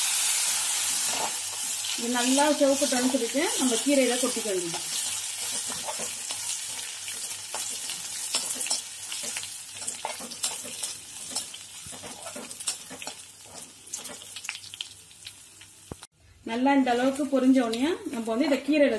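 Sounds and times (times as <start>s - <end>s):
spices sizzling in hot oil: 0.0s - 16.1s, 16.7s - 18.9s
spatula scraping a pan: 4.7s - 14.3s
crackles and pops: 13.0s - 16.1s.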